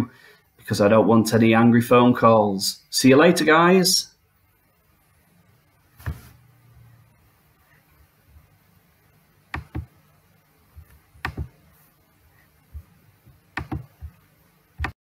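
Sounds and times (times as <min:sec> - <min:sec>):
faint low hum: 0:00.0 - 0:15.0
sharp knocks: 0:11.2 - 0:11.5.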